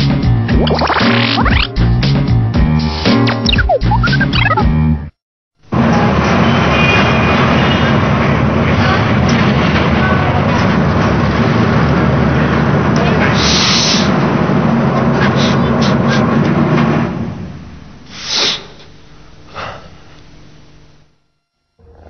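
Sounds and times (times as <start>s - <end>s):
short hiss: 18.1s - 19.0s.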